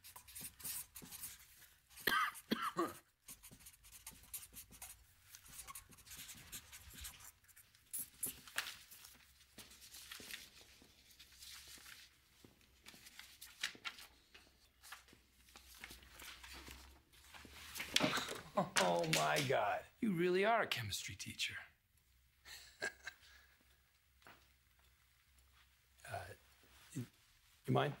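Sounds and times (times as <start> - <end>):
marker scratching on paper: 0.0 - 1.6, 3.2 - 8.6.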